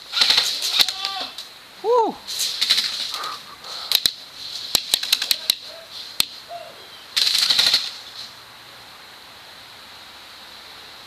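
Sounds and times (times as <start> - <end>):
airsoft guns firing: 7.2 - 8.0.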